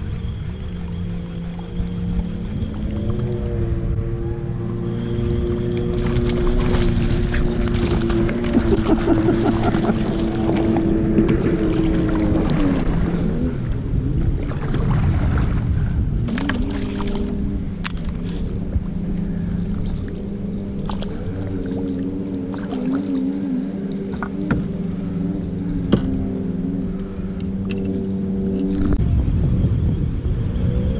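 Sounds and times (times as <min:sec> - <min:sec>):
motorboat engine humming: 0:00.0 - 0:30.9
scattered clicks: 0:27.0 - 0:29.0.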